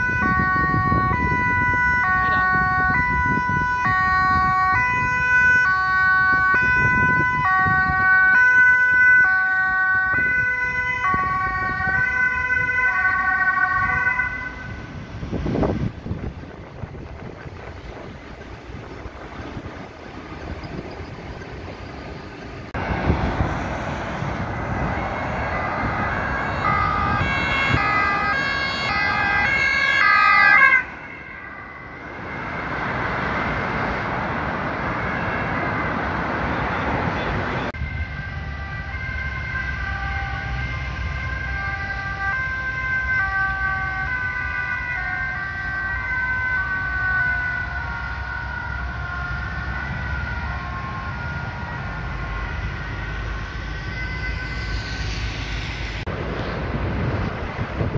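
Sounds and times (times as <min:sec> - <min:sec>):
two-tone siren: 0:00.0 - 0:19.9, 0:24.2 - 0:56.1
traffic noise: 0:00.0 - 0:57.9.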